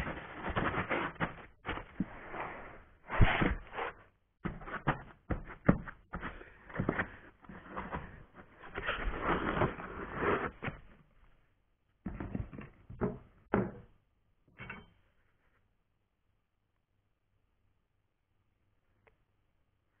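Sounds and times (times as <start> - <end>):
foam and cardboard rustling: 0.0 - 11.0.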